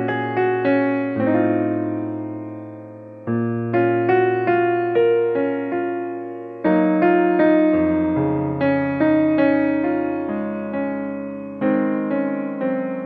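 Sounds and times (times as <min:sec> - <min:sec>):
soft piano tune: 0:00.0 - 0:13.0.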